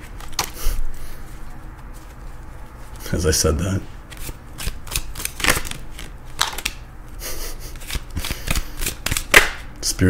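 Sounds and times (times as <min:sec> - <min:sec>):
cards being shuffled: 0:00.0 - 0:03.2, 0:04.1 - 0:06.8, 0:07.7 - 0:09.6.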